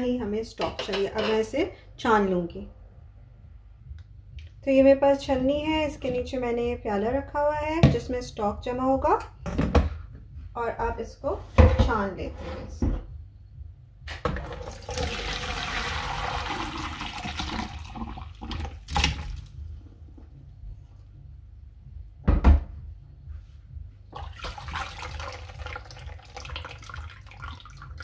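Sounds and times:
liquid splashing through a colander: 14.3s - 19.6s, 24.2s - 28.0s.

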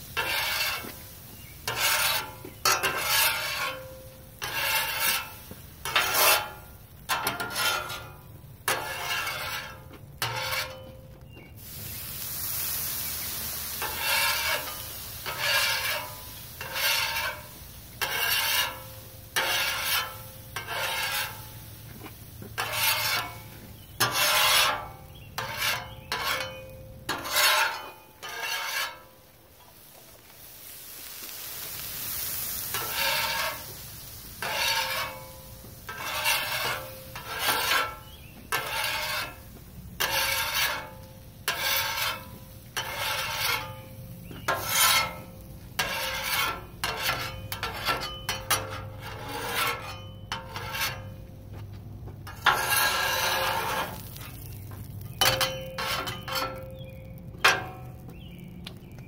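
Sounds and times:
steady hiss: 0.0s - 10.0s, 11.4s - 25.1s, 26.6s - 48.9s
metal spatula scraping griddle: 0.0s - 30.8s, 31.4s - 51.4s, 52.2s - 58.0s.

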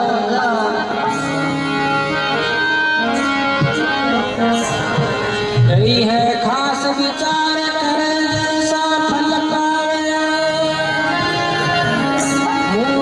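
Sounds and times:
harmonium melody: 0.0s - 13.0s
percussion beat: 3.2s - 4.2s.

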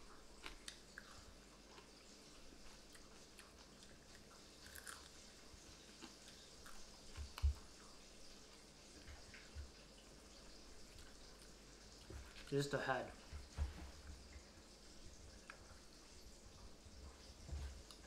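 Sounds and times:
chewing and crunching fried fish: 0.0s - 12.6s.

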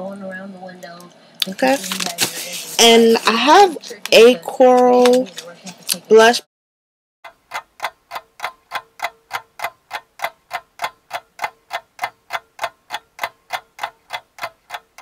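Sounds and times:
clock ticking: 7.2s - 15.0s.

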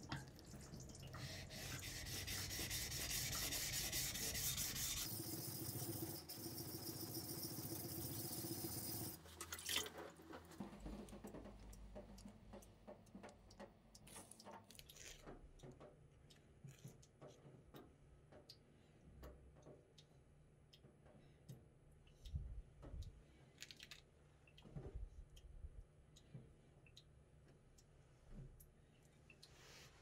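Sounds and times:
knife grinding on whetstone: 1.4s - 5.1s
faint clicks and taps: 10.2s - 29.6s.

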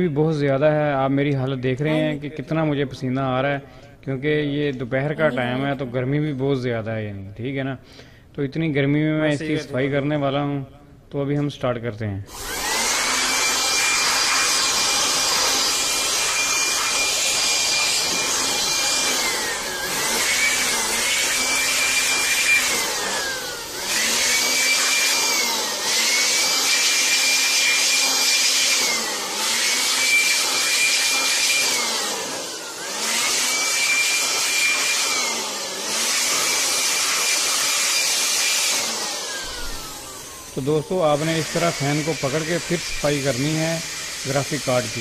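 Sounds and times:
electric blower whining: 12.3s - 45.0s.

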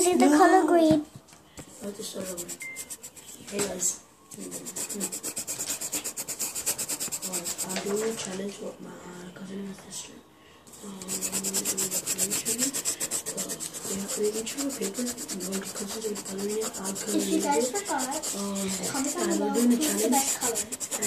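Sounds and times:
pencil scribbling on paper: 2.2s - 3.4s, 4.4s - 8.3s, 10.9s - 21.0s.

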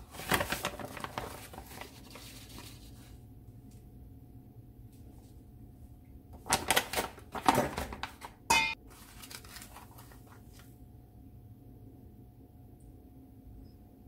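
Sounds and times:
foil sachet crinkling: 0.0s - 3.2s, 6.4s - 10.7s
steel kitchenware clinking: 8.5s - 8.8s.

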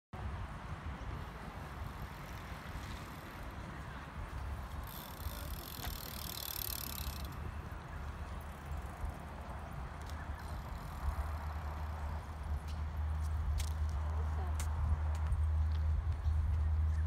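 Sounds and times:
bicycles passing rumble: 0.2s - 17.0s
freewheel hub buzz: 4.7s - 7.5s.

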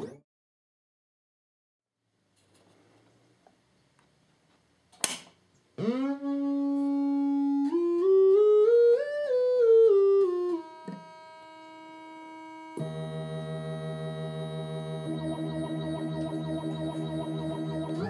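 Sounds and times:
buzzy test tone stepping in pitch: 5.8s - 18.0s.

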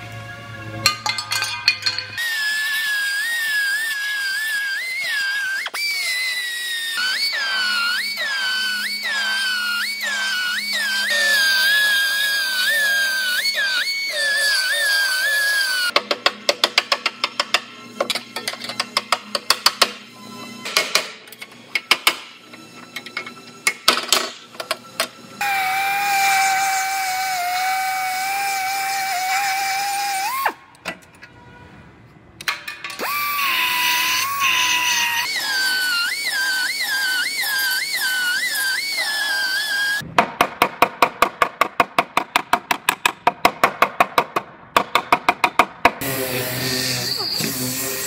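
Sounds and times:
air drill whining: 2.2s - 16.0s, 24.4s - 30.6s, 33.0s - 40.0s, 46.0s - 48.0s.

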